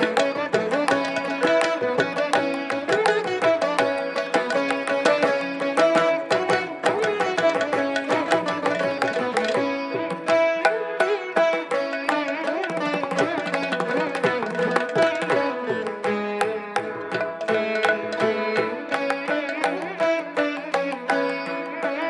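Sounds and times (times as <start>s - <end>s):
plucked string ensemble: 0.0s - 22.0s.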